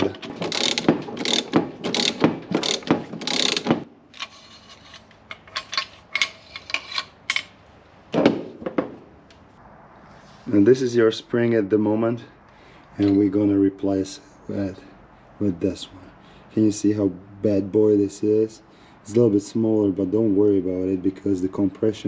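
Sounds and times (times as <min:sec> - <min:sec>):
metal parts clicking: 0:00.0 - 0:07.6
ratchet wrench clicking: 0:00.4 - 0:04.3
thump: 0:08.2 - 0:09.0.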